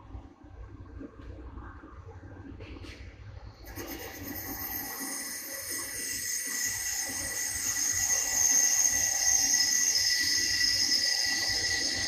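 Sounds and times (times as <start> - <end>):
lathe machining whine: 3.7 - 12.0.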